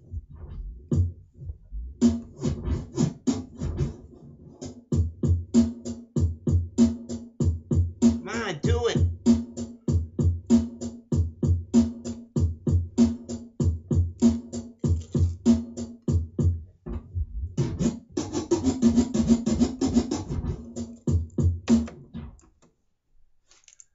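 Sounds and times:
vinyl scratches: 0.0s - 4.7s, 8.0s - 9.1s, 17.2s - 22.0s
hip-hop drum-machine beat: 0.0s - 22.2s.

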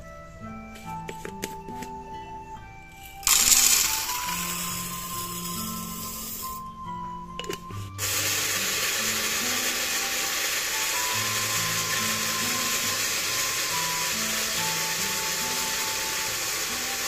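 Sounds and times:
blender grinding coffee beans: 3.1s - 6.6s, 8.0s - 17.0s.

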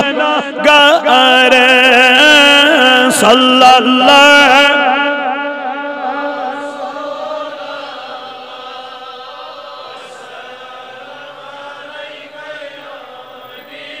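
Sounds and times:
voices chanting melodically: 3.8s - 14.0s.

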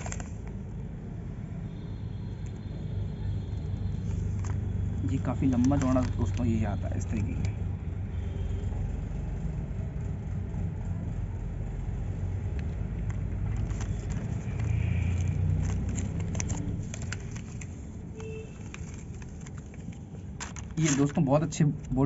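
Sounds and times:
paper and plastic rustling: 0.0s - 0.6s, 4.0s - 7.5s, 13.0s - 22.0s.

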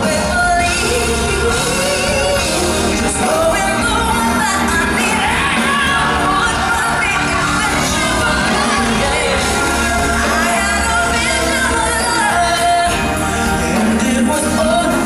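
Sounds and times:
full band accompaniment: 0.0s - 15.0s
woman singing pop ballad: 0.0s - 15.0s.

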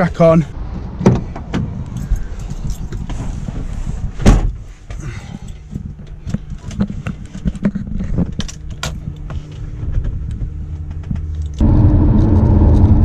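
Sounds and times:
van driving road noise: 0.0s - 5.3s, 8.5s - 13.0s.

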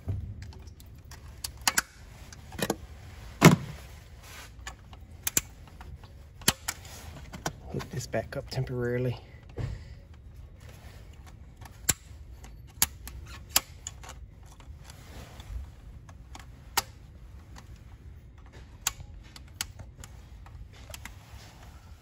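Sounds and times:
pliers and hose clamps clicking: 0.4s - 2.8s, 4.6s - 6.8s, 11.2s - 14.7s, 18.4s - 21.1s.

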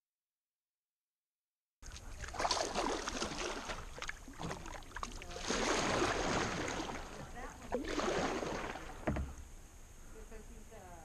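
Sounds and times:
paddle splashing and dripping: 1.8s - 9.6s.

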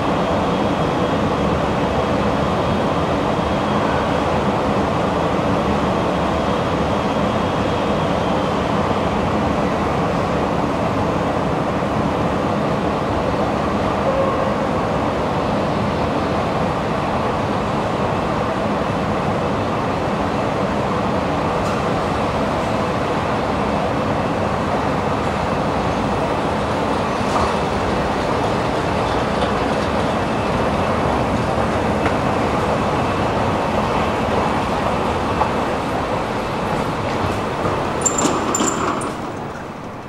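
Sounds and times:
escalator mechanical rumble: 34.4s - 40.0s.

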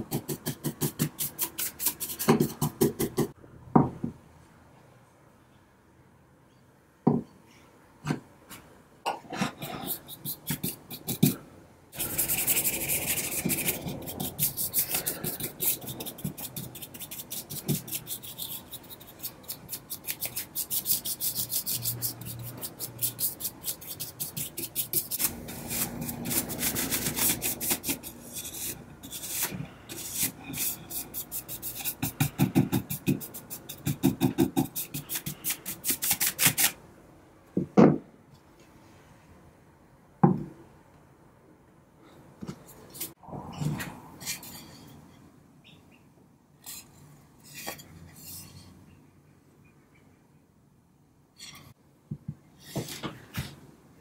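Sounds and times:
paintbrush scrubbing on wood: 12.0s - 32.2s.

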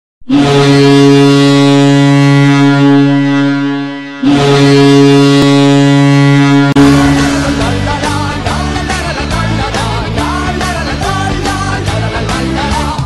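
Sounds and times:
goal horn blasts: 0.2s - 8.6s.

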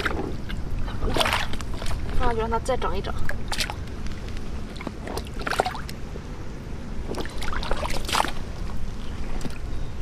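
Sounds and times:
water splashing: 0.0s - 2.2s, 4.7s - 6.0s, 7.1s - 8.6s.

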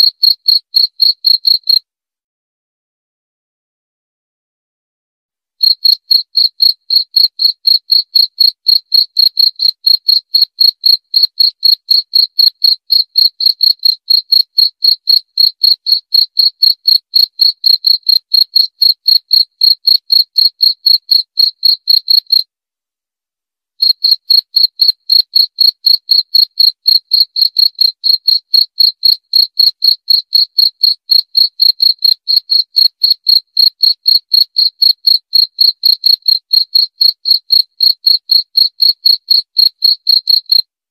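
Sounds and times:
cricket chirping: 0.0s - 1.8s, 5.6s - 22.4s, 23.8s - 40.6s.

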